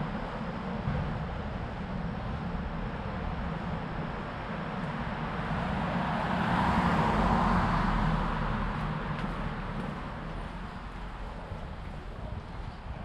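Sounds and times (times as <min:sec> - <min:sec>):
city traffic hum: 0:00.0 - 0:13.0
car driving past: 0:05.5 - 0:10.8.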